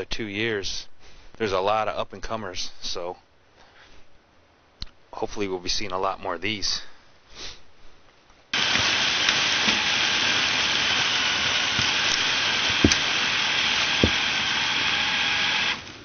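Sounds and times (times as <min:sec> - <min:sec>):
loud steady hiss: 0:08.5 - 0:16.0
dull thumps: 0:13.9 - 0:14.3.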